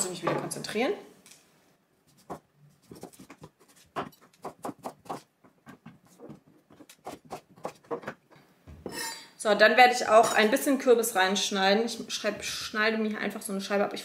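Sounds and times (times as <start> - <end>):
knife chopping on cutting board: 2.3 - 8.1.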